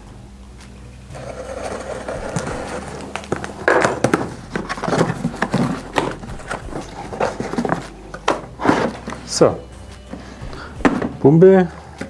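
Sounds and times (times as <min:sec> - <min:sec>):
cardboard scraping and rustling: 0:01.2 - 0:09.5.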